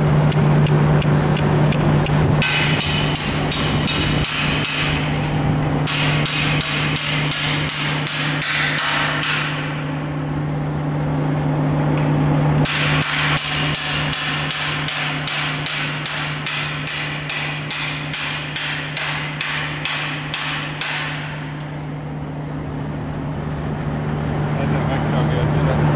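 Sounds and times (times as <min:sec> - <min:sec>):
hammer striking steel stake: 0:05.8 - 0:09.7, 0:12.6 - 0:21.7.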